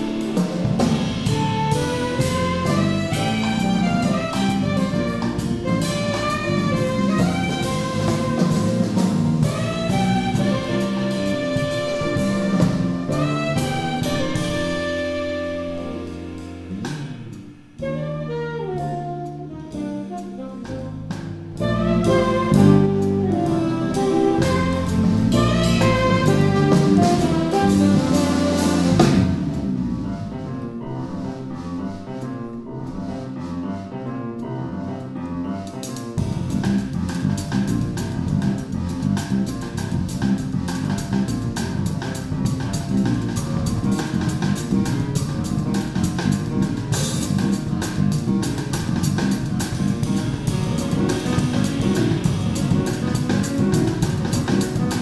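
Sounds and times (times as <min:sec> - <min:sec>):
alto saxophone melody: 0:00.0 - 0:29.4, 0:48.2 - 0:55.0
drum kit groove: 0:00.0 - 0:30.8, 0:35.7 - 0:55.0
electric bass guitar: 0:00.0 - 0:32.0, 0:35.5 - 0:55.0
grand piano: 0:00.0 - 0:55.0.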